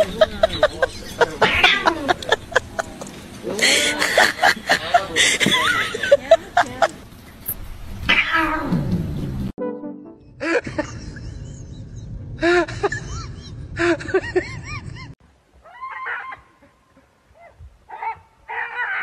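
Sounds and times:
dog yelping: 1.4 - 2.0, 8.1 - 8.8, 15.6 - 16.5, 17.4 - 19.0
low rumble: 10.3 - 15.2.

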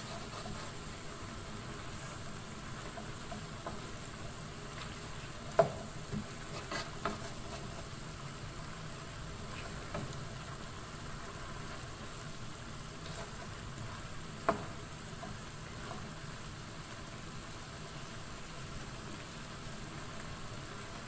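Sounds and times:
wooden spatula stirring: 0.0 - 1.0, 2.8 - 8.3.

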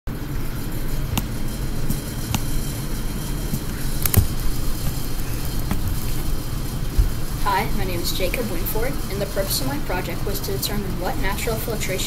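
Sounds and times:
recording device handling clicks: 4.0 - 4.4.

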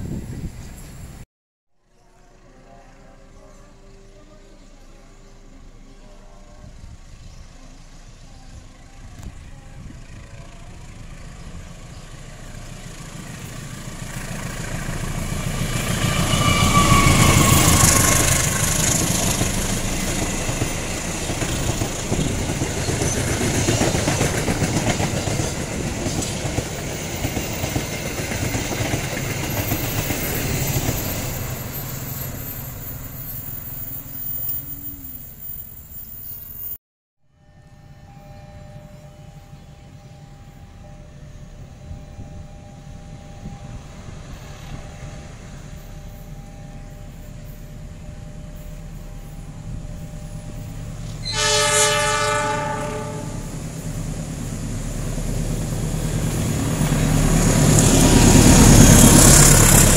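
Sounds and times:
diesel locomotive passing: 1.9 - 36.8, 37.4 - 59.9
train wheels clacking over rail joints: 17.3 - 31.0.

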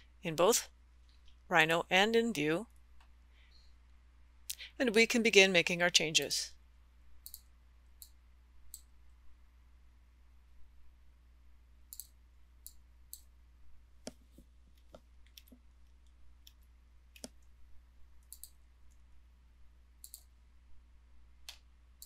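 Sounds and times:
faint low hum: 0.0 - 22.0
computer mouse clicking: 7.2 - 8.9, 11.9 - 13.3, 14.0 - 17.5, 18.2 - 19.0, 20.0 - 20.3.

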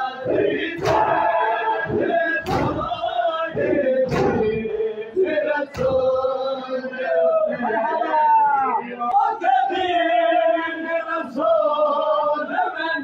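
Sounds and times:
men chanting: 0.0 - 13.0
hands slapping chests: 0.8 - 1.2, 1.9 - 3.0, 4.1 - 4.6.

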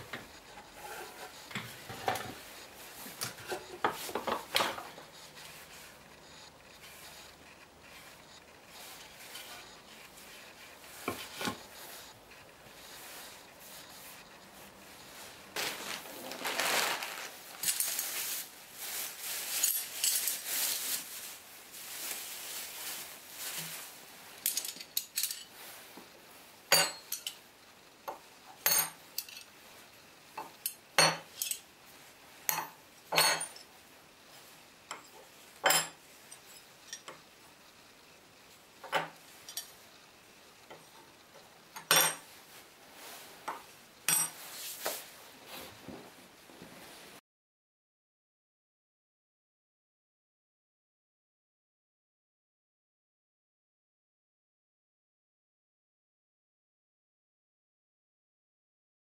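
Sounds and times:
rustling and scraping handling: 0.0 - 27.4, 28.0 - 47.2
steel irons clinking on wood: 26.7 - 27.4, 30.4 - 31.6, 32.5 - 33.7, 34.9 - 37.2, 38.8 - 39.7, 41.8 - 42.3.

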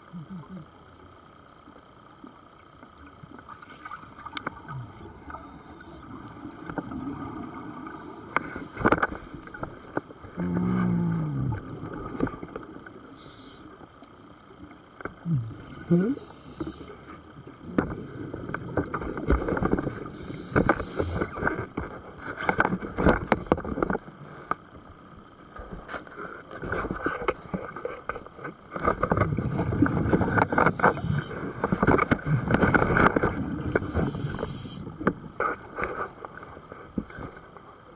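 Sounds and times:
bubbling exhalations: 10.3 - 12.6
regulator hissing inhalations: 13.2 - 13.7, 20.1 - 21.3, 30.5 - 31.3, 33.7 - 34.9.

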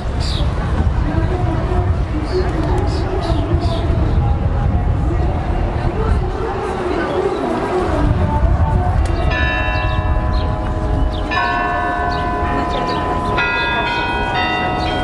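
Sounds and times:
bells ringing: 9.2 - 15.0.

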